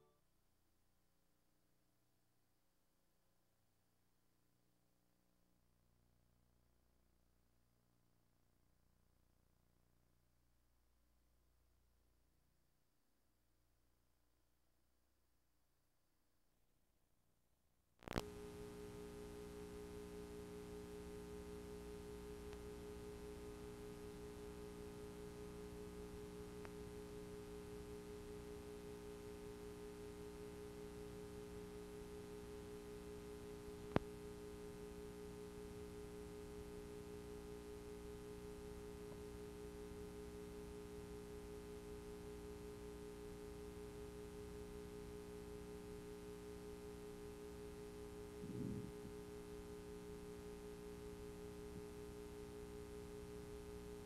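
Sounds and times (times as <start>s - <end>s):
faint electrical hum: 18.1s - 54.0s.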